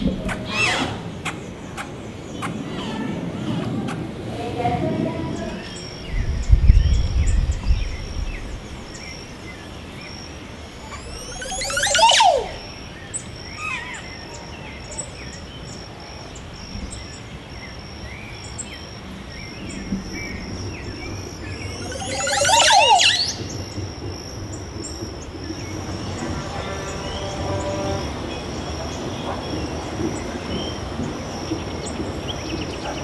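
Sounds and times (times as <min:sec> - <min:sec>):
steady high-pitched whine: 0:08.3 - 0:13.4, 0:20.2 - 0:28.0
bird gurgling song: 0:10.8 - 0:14.0, 0:19.4 - 0:23.8
small bird chirps: 0:10.9 - 0:13.1, 0:21.5 - 0:23.6.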